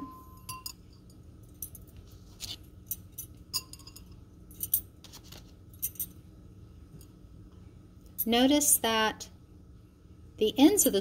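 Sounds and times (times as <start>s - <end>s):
spoons clinking against glass: 0.0s - 1.8s, 2.9s - 4.8s.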